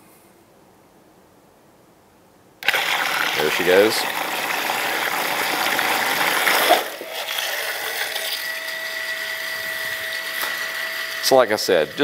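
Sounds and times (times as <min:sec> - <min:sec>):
water churning and splashing: 0:02.6 - 0:08.2
pump motor whirring: 0:02.6 - 0:12.0.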